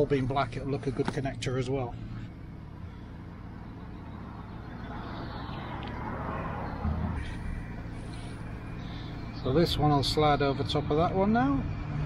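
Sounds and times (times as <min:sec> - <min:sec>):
steady low traffic hum: 0:00.0 - 0:12.0
vehicle passing: 0:01.6 - 0:12.0.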